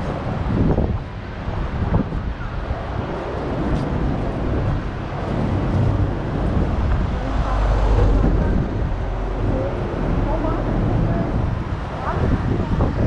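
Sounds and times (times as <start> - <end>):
deep engine rumble: 0.0 - 13.0
vehicle and tyre noise: 0.0 - 13.0.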